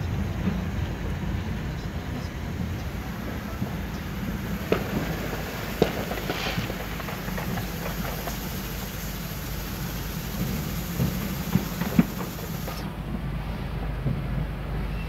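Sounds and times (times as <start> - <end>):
car engine rumble: 0.0 - 15.0
sharp pops: 2.7 - 13.0.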